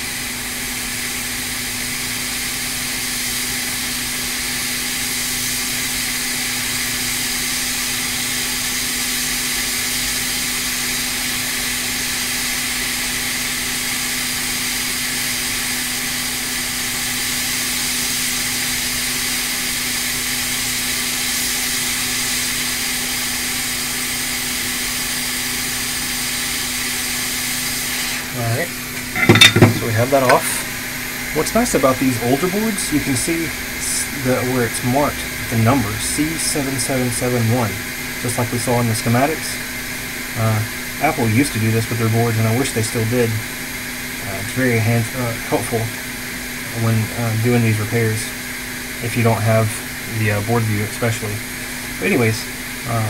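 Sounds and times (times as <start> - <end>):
hot air blower hissing: 0.0 - 53.0
constant hum: 27.7 - 43.4.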